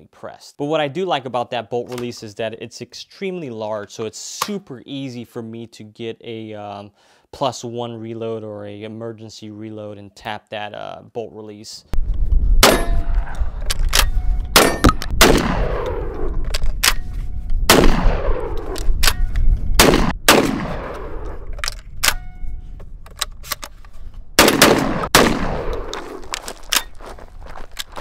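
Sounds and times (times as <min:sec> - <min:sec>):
shotgun shots with echo: 0:12.6 - 0:13.3, 0:14.6 - 0:16.3, 0:17.7 - 0:18.8, 0:19.8 - 0:21.3, 0:24.4 - 0:26.3.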